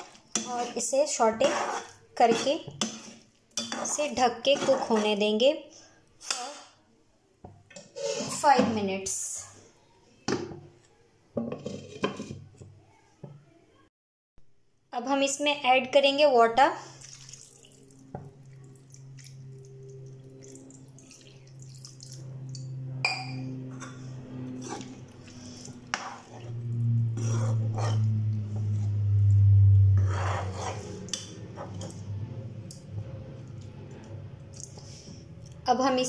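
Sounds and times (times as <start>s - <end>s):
spatula scraping a pan: 0.0s - 5.4s, 7.8s - 8.8s, 11.4s - 12.6s, 23.6s - 29.0s, 30.0s - 32.2s
water poured into a pan: 16.8s - 22.6s
steady low hum: 18.3s - 35.8s.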